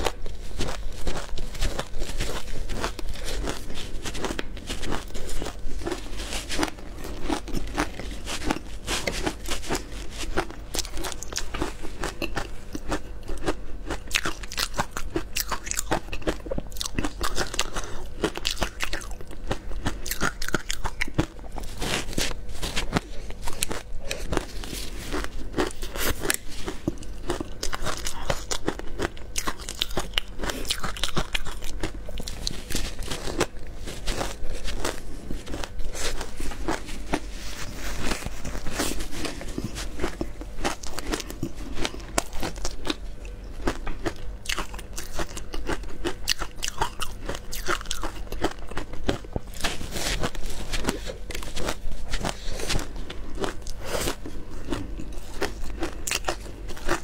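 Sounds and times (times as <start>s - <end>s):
chewing crunchy shaved ice: 0.0s - 57.0s.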